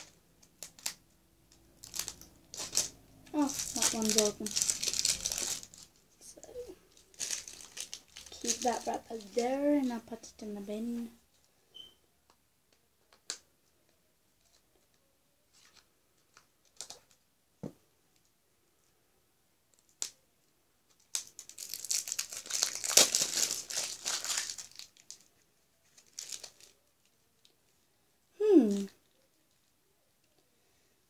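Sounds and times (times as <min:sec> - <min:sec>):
wrapper tearing and crackling: 0:00.0 - 0:10.0, 0:15.5 - 0:17.2, 0:19.7 - 0:20.2, 0:20.9 - 0:27.5
wrapper crinkling: 0:00.0 - 0:10.9, 0:14.4 - 0:17.2, 0:20.9 - 0:27.6, 0:28.6 - 0:30.4.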